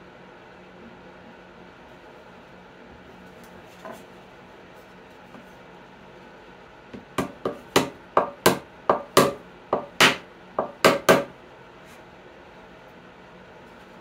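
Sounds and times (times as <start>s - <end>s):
hammer tapping wooden plug: 7.0s - 11.3s.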